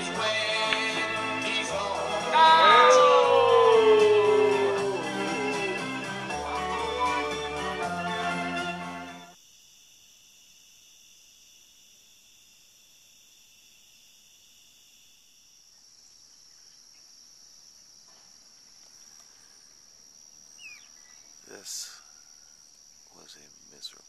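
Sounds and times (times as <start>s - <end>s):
night insects trilling: 0.0s - 6.7s, 9.3s - 24.0s
background music: 0.0s - 9.4s.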